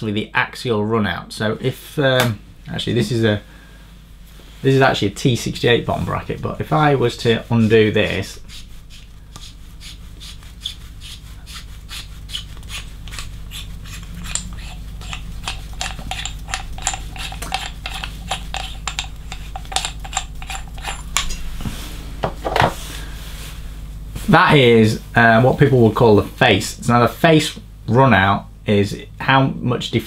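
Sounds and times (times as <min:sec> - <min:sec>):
metal threads clicking and rubbing: 0:12.3 - 0:21.4.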